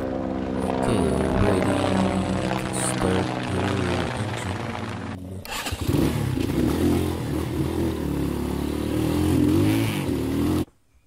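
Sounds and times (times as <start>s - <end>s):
motorcycle engine revving: 0.0s - 10.7s.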